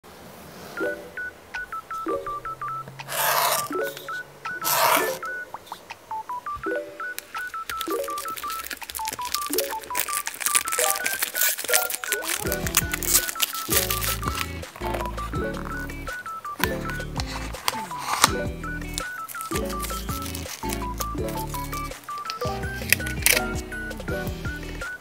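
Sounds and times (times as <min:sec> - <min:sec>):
beeping synth melody: 0:00.8 - 0:25.0
cardboard packaging rustling: 0:03.0 - 0:03.7, 0:04.6 - 0:05.2, 0:07.4 - 0:24.0
plastic wrap crackling: 0:07.4 - 0:24.0
low synth chords: 0:18.3 - 0:19.0.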